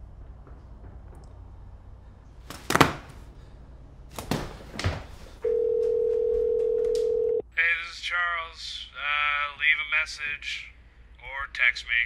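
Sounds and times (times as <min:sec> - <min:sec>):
knocks and bumps: 0:00.0 - 0:03.3
phone ringback tone: 0:05.4 - 0:07.4.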